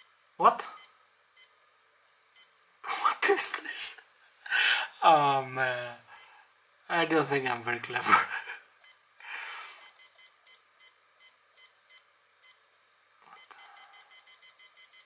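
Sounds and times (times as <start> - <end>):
short high-pitched key beeps: 0.8 - 1.6, 8.8 - 12.6, 13.4 - 15.0.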